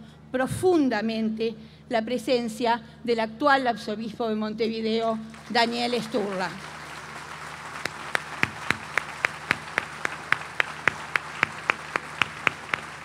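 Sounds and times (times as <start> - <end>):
person clapping hands: 5.3 - 13.0.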